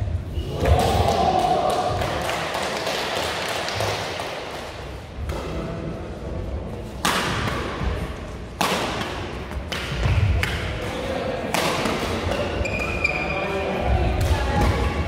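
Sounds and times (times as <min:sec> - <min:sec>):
racket hitting shuttlecock: 0:07.0 - 0:07.9, 0:08.6 - 0:12.9.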